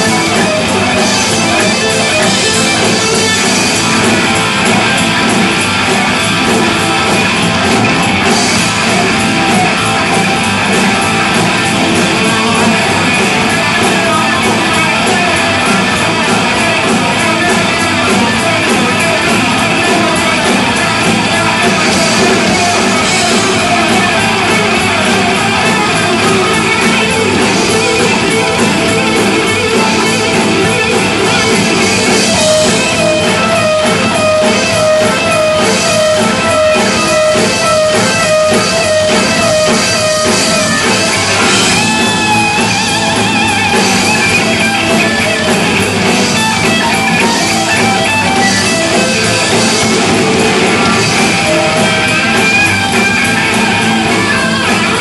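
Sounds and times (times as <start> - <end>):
electric guitar lead: 0.0 - 55.0
live rock band playing: 0.0 - 55.0
organ: 0.0 - 55.0
rapidly repeated high notes: 0.0 - 55.0.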